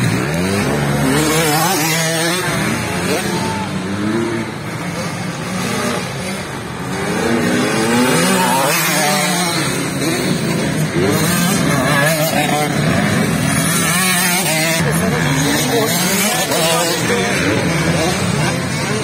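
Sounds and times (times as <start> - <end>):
motocross bike engines revving: 0.0 - 19.0.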